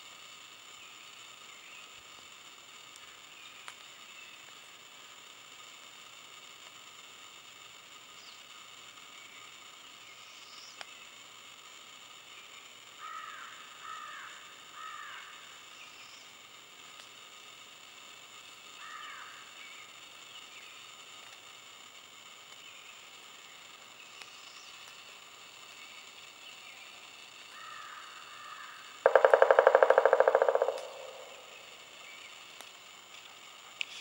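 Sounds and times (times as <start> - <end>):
woodpecker drumming on wood: 27.6 - 32.0.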